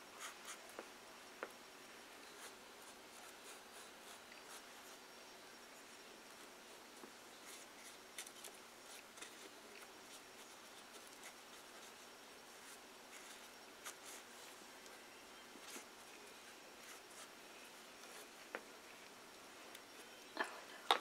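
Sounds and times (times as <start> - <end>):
low hiss: 0.0 - 21.0
paintbrush scratchy strokes: 2.2 - 5.0, 5.8 - 15.0, 15.6 - 18.4.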